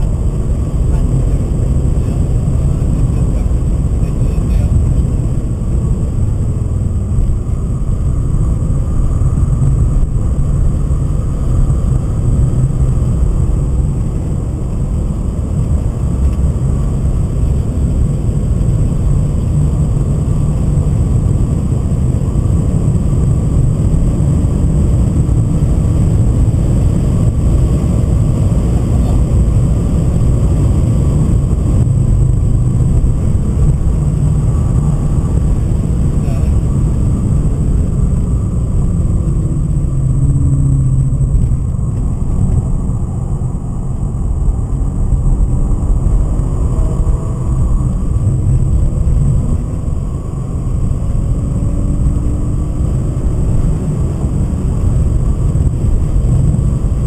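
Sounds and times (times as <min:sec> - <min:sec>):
car engine from inside cabin: 0:00.0 - 0:57.0
tyre and road noise: 0:00.0 - 0:57.0.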